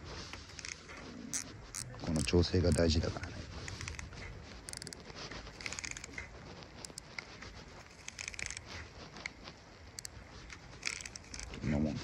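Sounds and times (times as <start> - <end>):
fishing reel clicking: 0.5 - 3.0, 3.7 - 6.2, 6.8 - 7.2, 7.8 - 8.7, 10.8 - 11.6.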